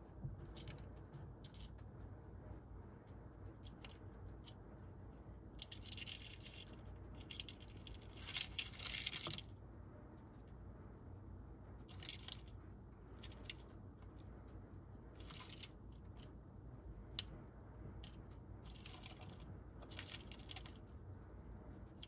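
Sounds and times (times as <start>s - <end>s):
low steady hum: 0.0s - 22.0s
beetle legs scratching on plastic: 18.0s - 20.9s.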